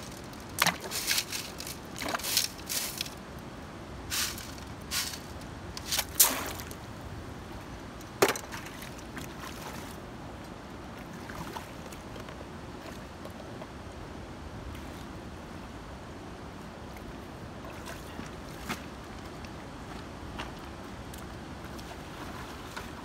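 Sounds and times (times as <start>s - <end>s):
wet gravel rattling in sieve: 0.0s - 3.2s, 4.1s - 6.8s
water noise: 0.0s - 23.0s.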